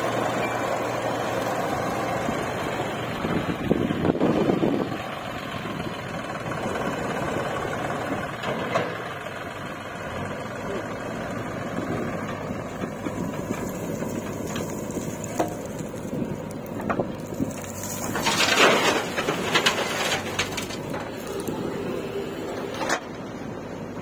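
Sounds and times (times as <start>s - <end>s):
diesel engines running: 0.0s - 24.0s
backhoe digging soil: 6.0s - 24.0s.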